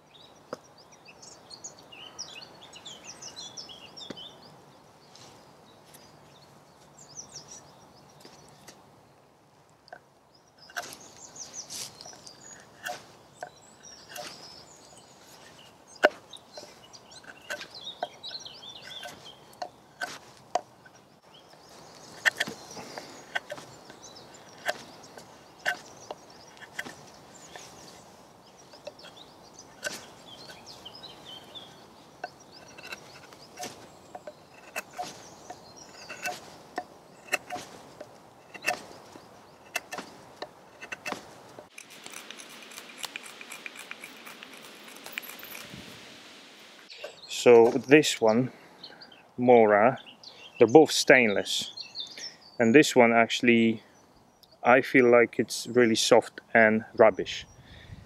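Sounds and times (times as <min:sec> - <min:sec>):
birds chirping: 0:00.0 - 0:58.0
knife carving wood clicks: 0:16.0 - 0:18.2, 0:22.2 - 0:27.7, 0:29.8 - 0:30.6, 0:32.2 - 0:45.6.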